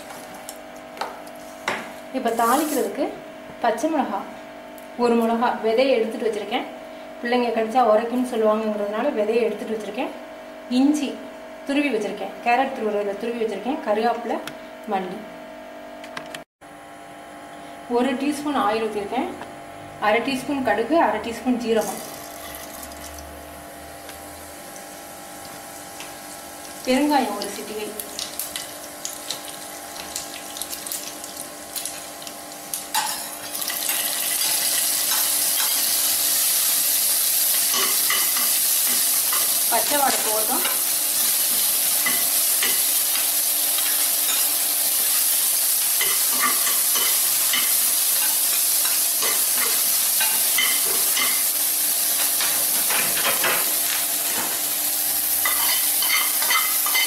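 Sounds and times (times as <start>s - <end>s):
chillies sizzling: 1.3s - 3.0s, 21.6s - 23.4s, 24.0s - 57.0s
seeds crackling in hot oil: 24.0s - 53.0s.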